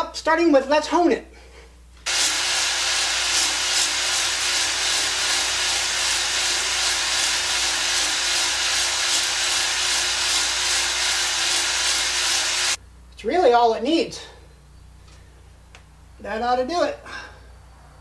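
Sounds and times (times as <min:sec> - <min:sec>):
electric drill whirring: 0:02.1 - 0:12.8.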